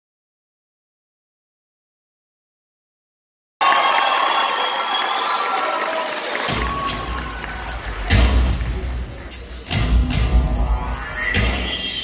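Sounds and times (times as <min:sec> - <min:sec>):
audience cheering: 0:03.6 - 0:09.9
music: 0:06.4 - 0:12.0.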